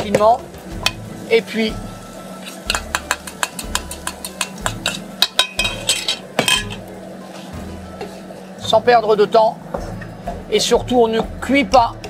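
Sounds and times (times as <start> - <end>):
utensils knocking and scraping pan: 0.0 - 1.1, 2.4 - 8.3.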